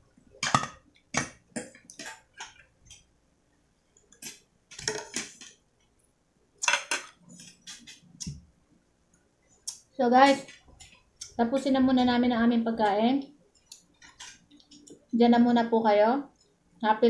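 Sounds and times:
cutlery clinking on plates: 6.6s - 8.0s.

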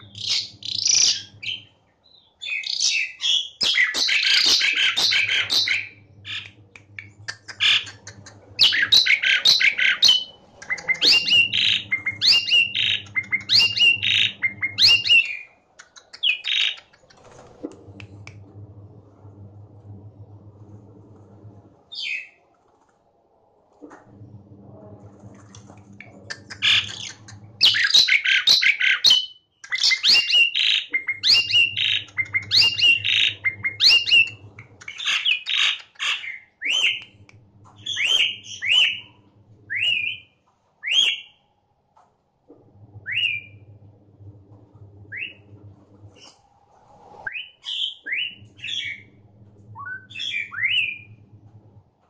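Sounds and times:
short rising whistles: 36.6s - 41.4s, 43.0s - 43.8s.

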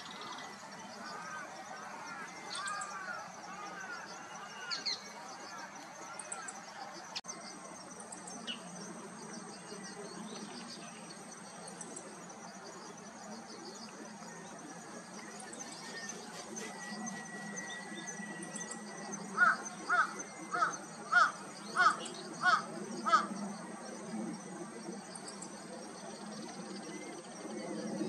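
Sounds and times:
insects chirring: 0.0s - 28.0s
steady outdoor hum: 0.0s - 28.0s
crow cawing: 19.4s - 23.3s.

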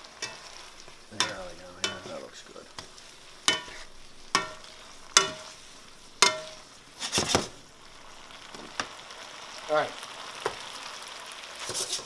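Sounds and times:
sauce sizzling in pan: 0.0s - 12.0s
metal tongs clinking on skillet: 0.1s - 7.3s
tongs clattering: 0.2s - 5.6s, 6.2s - 7.5s.

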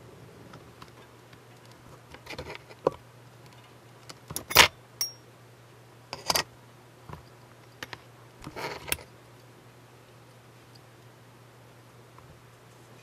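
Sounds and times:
tools clicking and clinking: 4.4s - 5.2s.

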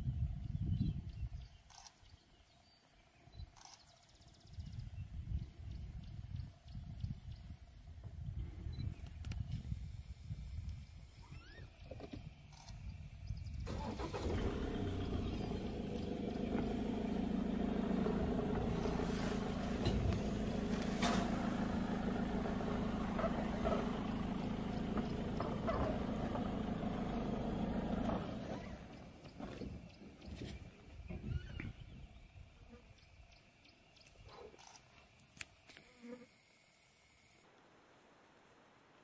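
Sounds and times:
vehicle engine idling: 12.3s - 31.1s.

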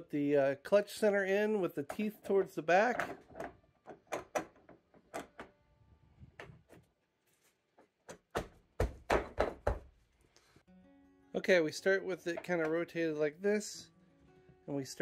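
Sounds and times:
metal clicks and knocks: 2.8s - 5.6s.

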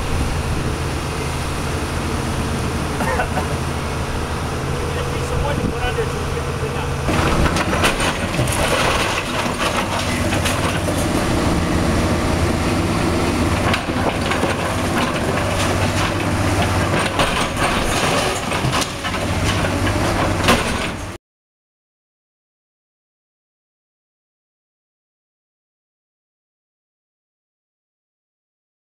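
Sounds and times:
excavator diesel engine running: 0.0s - 21.2s
debris cracking and clattering: 7.1s - 11.3s, 12.7s - 21.2s.

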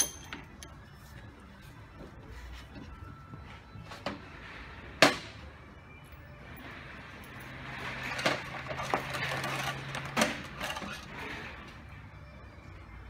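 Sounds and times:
metal rod clinking on tin: 0.0s - 0.4s.

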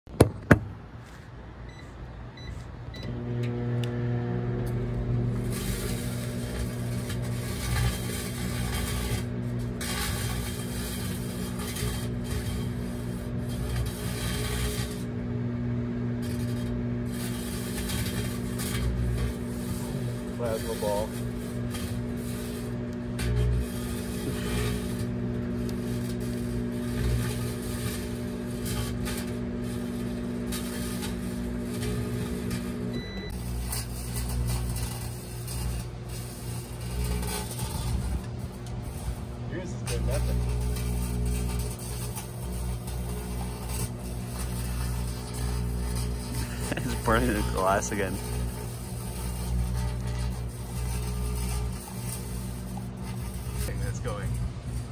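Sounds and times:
microwave oven humming: 1.6s - 54.9s
electrical sparks crackling: 4.5s - 54.9s.

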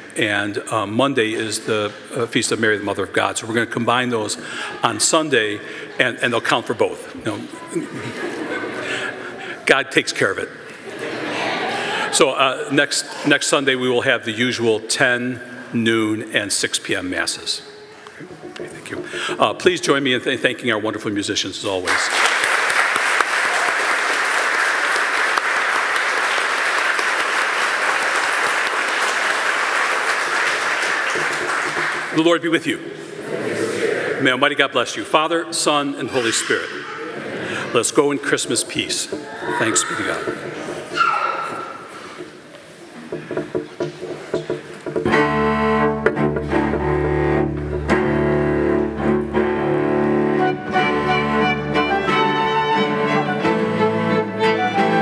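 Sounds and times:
crowd applauding: 21.9s - 32.4s
piano and strings playing chords: 45.0s - 55.0s.

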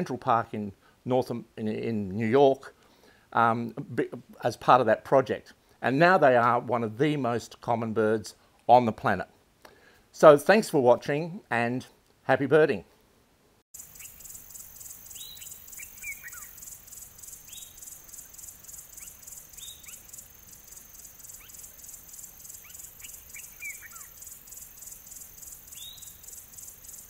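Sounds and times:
high-pitched insect chirring: 13.8s - 27.0s
bird chirps sweeping downward: 14.0s - 27.0s.

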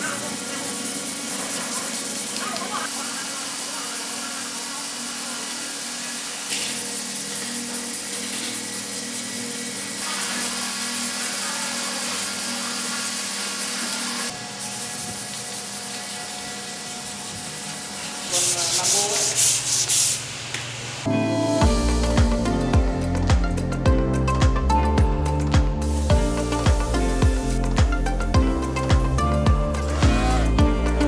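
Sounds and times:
sandpaper rubbing on wood: 0.0s - 20.3s, 29.7s - 30.6s.

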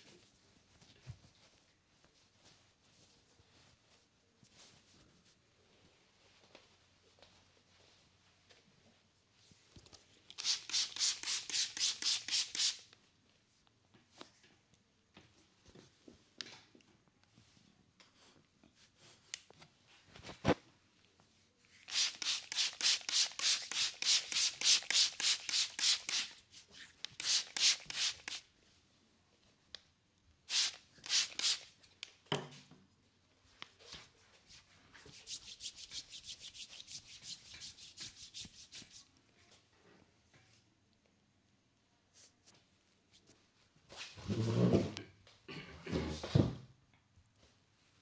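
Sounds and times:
hands rubbing skin: 10.3s - 12.8s, 21.8s - 28.4s, 30.5s - 31.7s, 34.5s - 39.1s.

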